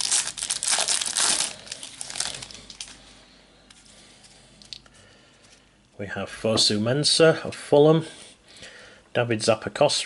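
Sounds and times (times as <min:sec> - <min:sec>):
plastic wrapper crinkling: 0:00.0 - 0:03.0.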